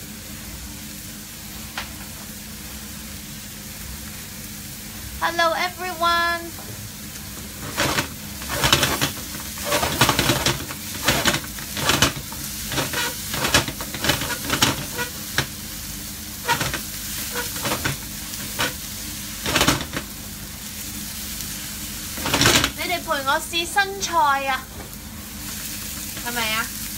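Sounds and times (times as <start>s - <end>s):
onion sizzling in oil: 0.0s - 26.9s
wooden spatula scraping pan: 7.5s - 15.5s, 16.4s - 18.8s.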